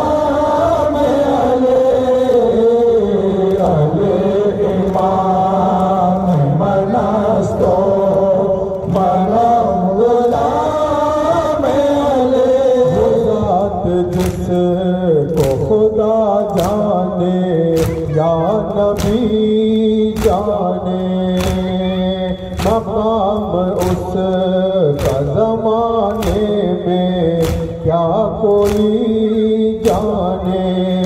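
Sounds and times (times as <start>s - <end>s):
men chanting in unison: 0.0s - 31.0s
hands slapping chests: 3.4s - 6.4s, 14.0s - 15.8s, 16.4s - 17.0s, 17.7s - 26.7s, 27.3s - 29.1s, 29.8s - 30.7s.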